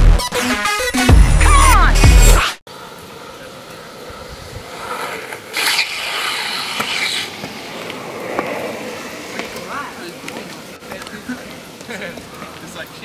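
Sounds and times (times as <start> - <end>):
skateboard wheels rolling on asphalt: 2.7 - 13.0
skateboard wheels scraping: 2.7 - 13.0.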